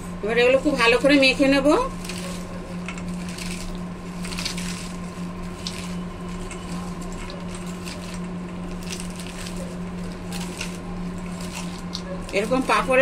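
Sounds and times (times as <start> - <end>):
steady low hum: 0.0 - 13.0
crisp papad crunching in bowl: 0.5 - 13.0.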